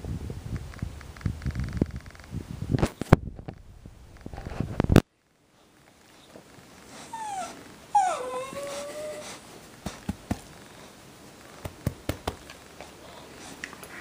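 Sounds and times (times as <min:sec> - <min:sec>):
dog whining: 0:06.9 - 0:09.6.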